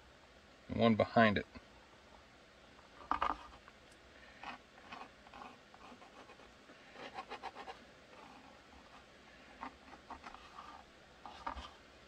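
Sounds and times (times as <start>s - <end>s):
pencil scratching on plastic sheet: 4.4s - 11.8s.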